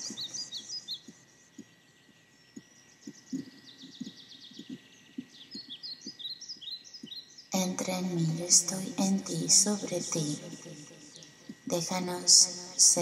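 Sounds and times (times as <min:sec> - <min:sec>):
soft low ticks: 0:00.0 - 0:07.5
small birds chirping and trilling: 0:00.0 - 0:13.0.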